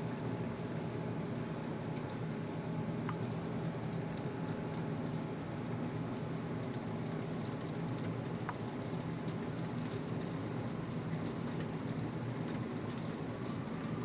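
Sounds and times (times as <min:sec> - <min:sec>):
wet snow and rain pattering: 0:03.0 - 0:14.0.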